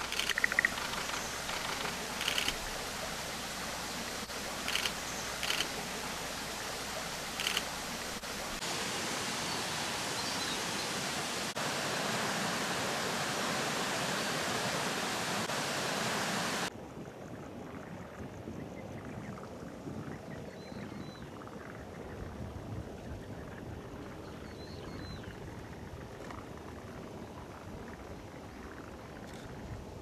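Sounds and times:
stream water rushing: 0.0 - 16.7.

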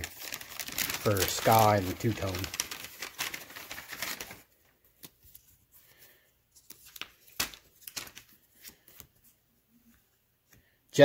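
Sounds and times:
paper rustling and clicks: 0.0 - 5.5, 6.6 - 9.1.

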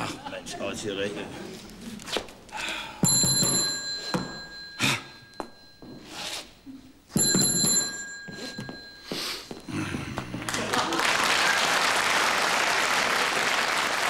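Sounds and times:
desk bell ringing: 3.0 - 6.1, 7.1 - 10.2.

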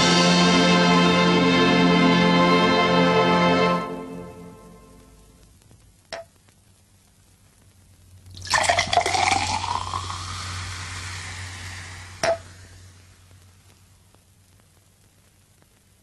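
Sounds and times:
water fizzing: 8.3 - 13.7
water pouring into a glass: 8.4 - 11.0.

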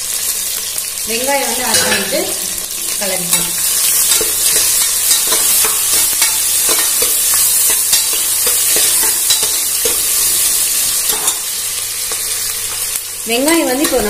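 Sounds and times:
onions sizzling in hot oil: 0.0 - 14.0.

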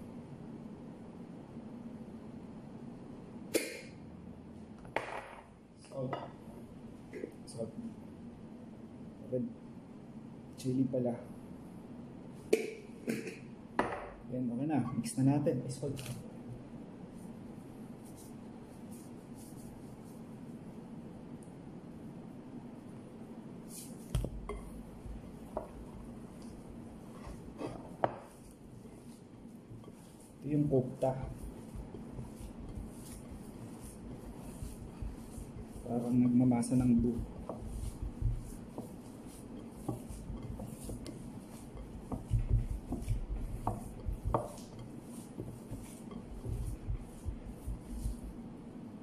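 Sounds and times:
steady low hum: 0.0 - 49.0
hands mixing in glass bowl: 23.7 - 48.4.

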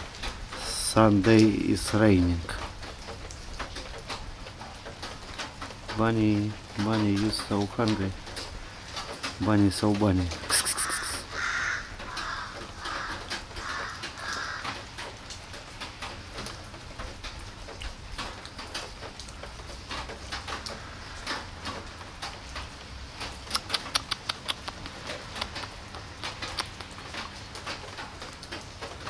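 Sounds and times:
rain hissing: 0.0 - 29.0
crow cawing: 10.8 - 14.9
cat chewing and lapping food: 23.2 - 28.3.

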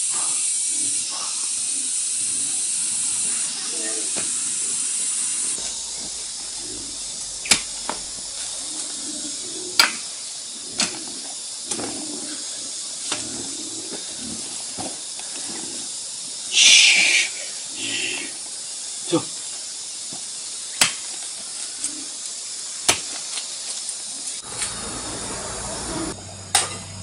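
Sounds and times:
steady high hiss: 0.0 - 27.0
hoe chopping into dry soil: 22.8 - 23.3.

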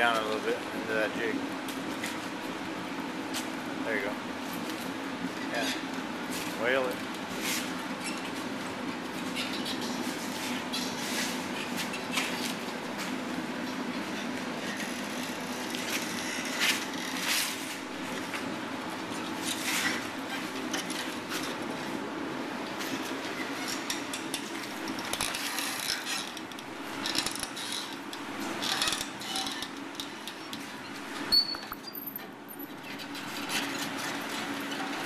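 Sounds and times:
steady background noise: 0.0 - 35.0
metal clinks and scrapes: 31.3 - 34.4.

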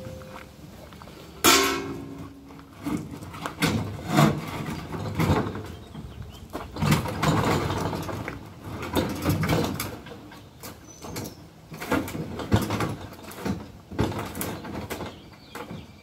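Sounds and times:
refrigerator scraping against truck bed: 2.8 - 5.9.

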